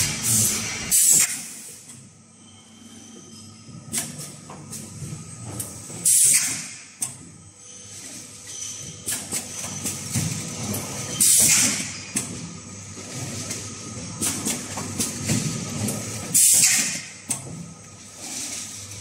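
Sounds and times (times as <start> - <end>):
low machine running noise: 0.0 - 19.0.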